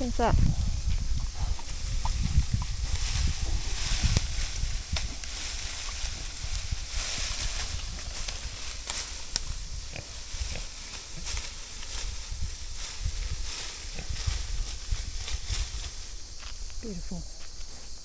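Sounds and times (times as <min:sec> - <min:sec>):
leaves rustling: 0:00.0 - 0:18.0.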